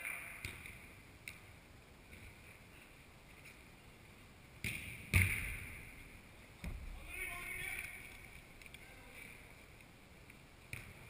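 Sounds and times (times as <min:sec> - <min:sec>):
football thuds echoing: 0:04.6 - 0:06.0, 0:06.6 - 0:08.0.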